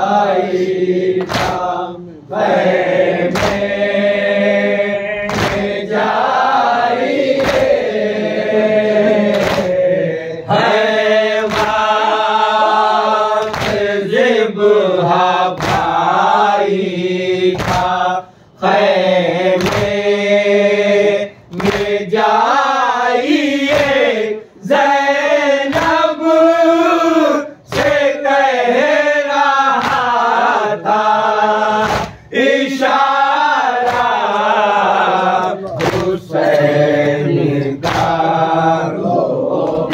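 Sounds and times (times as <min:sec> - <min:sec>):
men chanting in unison: 0:00.0 - 0:39.9
chest-beating slaps: 0:01.2 - 0:01.8, 0:02.4 - 0:03.8, 0:05.2 - 0:06.4, 0:07.3 - 0:08.0, 0:09.2 - 0:09.9, 0:10.5 - 0:12.2, 0:13.3 - 0:14.0, 0:15.4 - 0:16.7, 0:17.4 - 0:18.1, 0:19.5 - 0:20.1, 0:21.5 - 0:22.2, 0:23.6 - 0:24.2, 0:25.7 - 0:26.0, 0:27.7 - 0:28.1, 0:29.7 - 0:30.5, 0:31.7 - 0:33.1, 0:33.8 - 0:38.4.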